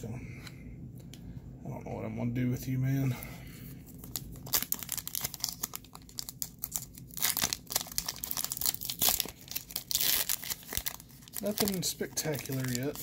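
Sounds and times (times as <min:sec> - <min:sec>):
foil wrapper crinkling: 0:03.9 - 0:13.0
foil wrapper tearing: 0:04.0 - 0:13.0.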